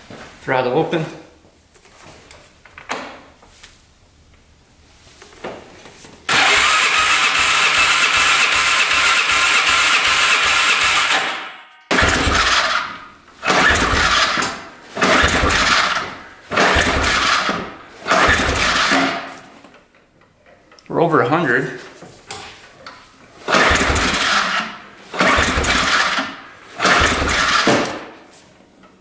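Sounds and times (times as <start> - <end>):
electric starter cranking engine: 6.3 - 19.3, 23.5 - 28.0.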